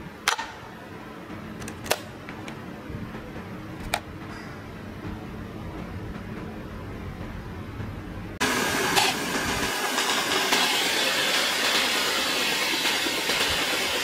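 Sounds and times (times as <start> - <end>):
low hum: 0.0 - 9.8
belt sander sanding wood: 8.4 - 14.0.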